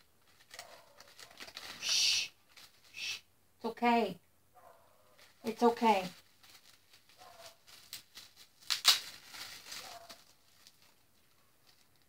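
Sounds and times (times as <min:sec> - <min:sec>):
dog snuffling: 0:07.2 - 0:07.7.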